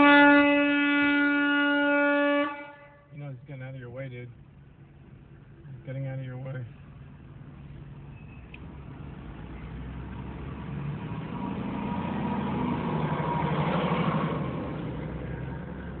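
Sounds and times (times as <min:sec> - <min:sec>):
fire engine diesel engine pulling away: 0:06.9 - 0:16.0.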